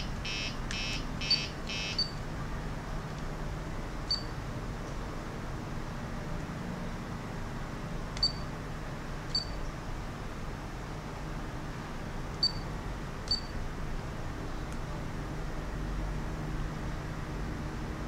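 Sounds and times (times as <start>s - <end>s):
short high-pitched beeps: 0.0s - 2.2s, 4.1s - 4.3s, 8.2s - 8.5s, 9.3s - 9.6s, 12.4s - 12.7s, 13.3s - 13.5s
steady low hum: 0.0s - 18.0s.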